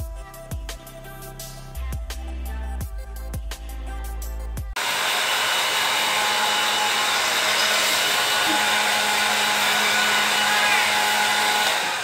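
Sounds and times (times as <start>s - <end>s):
hair dryer running: 4.8s - 12.0s.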